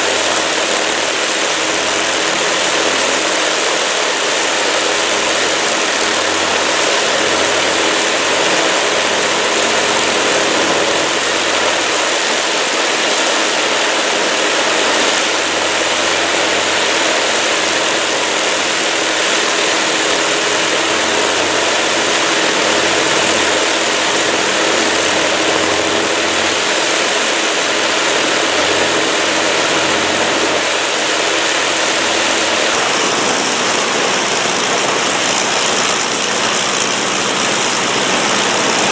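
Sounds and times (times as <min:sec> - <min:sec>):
aircraft piston engines droning: 0:00.0 - 0:38.9.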